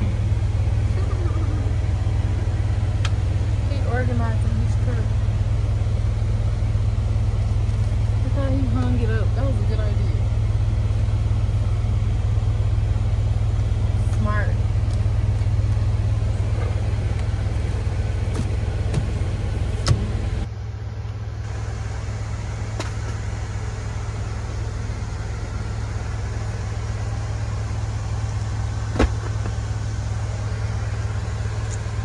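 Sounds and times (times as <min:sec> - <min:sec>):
truck engine idling: 0:00.0 - 0:32.0
sharp knocks in cab: 0:18.3 - 0:19.2, 0:19.8 - 0:20.2, 0:28.9 - 0:29.6.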